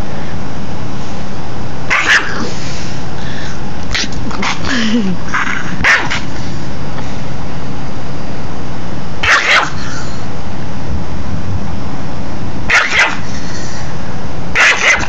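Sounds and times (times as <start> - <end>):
dog barking: 1.9 - 2.5, 5.7 - 6.4, 9.2 - 10.0, 12.7 - 13.4, 14.5 - 15.0
dog growling: 1.9 - 2.6, 3.9 - 6.4, 9.2 - 10.2, 12.7 - 13.6, 14.6 - 15.0.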